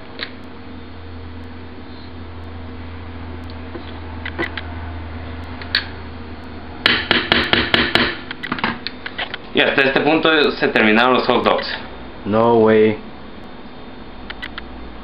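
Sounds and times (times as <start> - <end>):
steady low hum: 0.0 - 15.0
loud clicks and knocks: 6.8 - 8.8.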